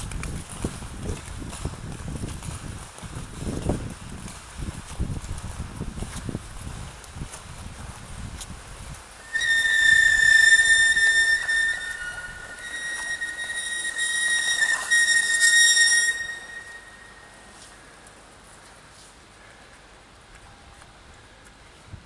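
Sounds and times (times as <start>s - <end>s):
high steady whistling tone: 9.2s - 17.8s.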